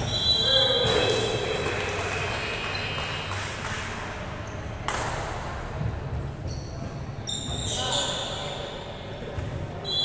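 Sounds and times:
hubbub of players and onlookers: 0.0 - 10.0
shoe squeaks on floor: 6.4 - 10.0.

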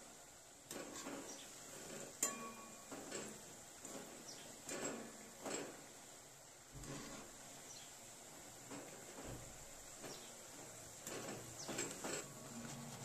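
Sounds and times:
potatoes frying in oil: 0.0 - 13.0.

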